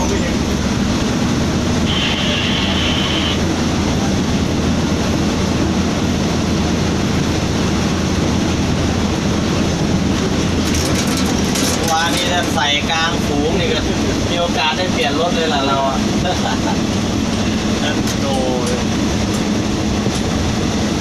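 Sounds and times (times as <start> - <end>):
high steady whine: 0.0 - 9.9
diesel locomotive engine drone: 0.0 - 21.0.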